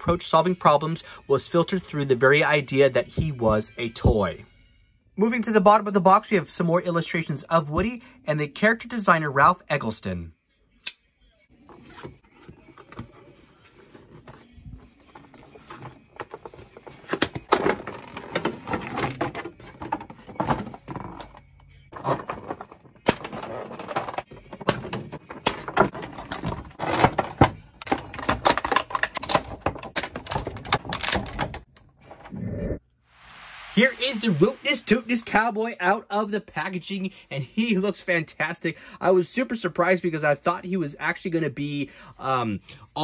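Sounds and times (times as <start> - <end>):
plastic packaging crinkling: 25.3 - 31.8.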